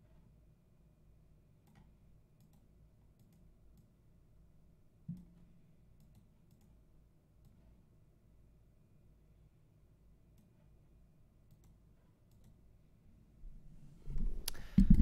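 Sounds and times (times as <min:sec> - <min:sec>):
faint computer mouse clicks: 0:01.6 - 0:03.9, 0:06.0 - 0:06.8, 0:11.5 - 0:12.6.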